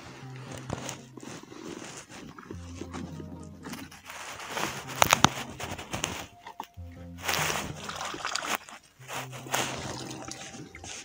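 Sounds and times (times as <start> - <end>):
net rustling: 0.0 - 3.0, 3.6 - 11.0
water splashing and sloshing: 1.7 - 11.0
low steady tone: 2.5 - 11.0.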